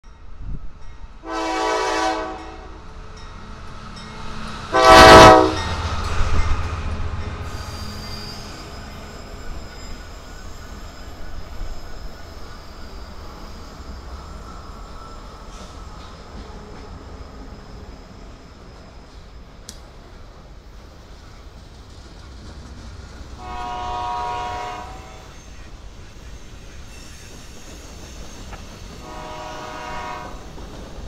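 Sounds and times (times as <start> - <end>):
rumble of passing train: 0.0 - 31.0
locomotive air horn blasts: 1.2 - 2.7, 4.7 - 5.7, 23.4 - 25.3, 29.0 - 30.4
high wheel squeal: 7.4 - 21.5, 23.4 - 31.0.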